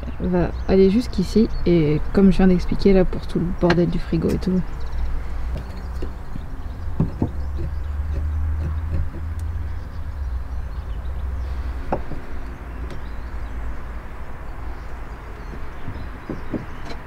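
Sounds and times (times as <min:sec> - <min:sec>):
wooden battens knocking: 0:06.9 - 0:09.4, 0:15.5 - 0:17.0.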